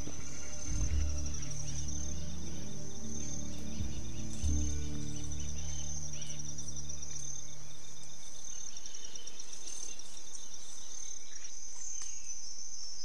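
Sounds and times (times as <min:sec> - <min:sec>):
low hum: 0:00.0 - 0:11.2
insects trilling: 0:00.0 - 0:13.0.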